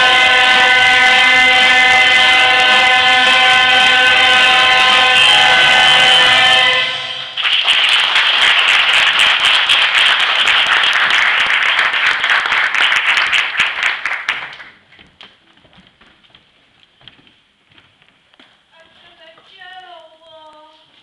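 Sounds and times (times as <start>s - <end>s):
audience applauding: 7.3s - 14.9s.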